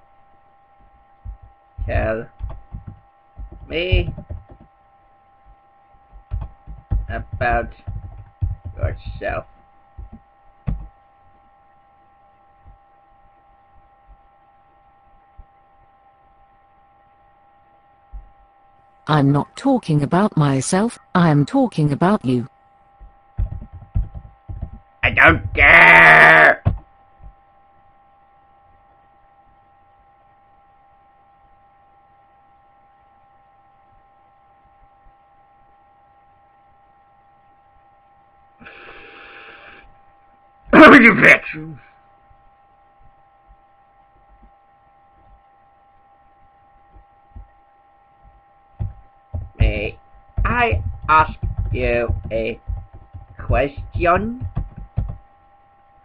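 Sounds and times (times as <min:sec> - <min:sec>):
electrical hum with high whine: 0:00.0 - 0:56.0
synthesized voice speaking: 0:03.7 - 0:04.2, 0:19.1 - 0:22.5, 0:25.0 - 0:26.6, 0:40.8 - 0:41.8, 0:49.6 - 0:52.6, 0:53.4 - 0:54.5.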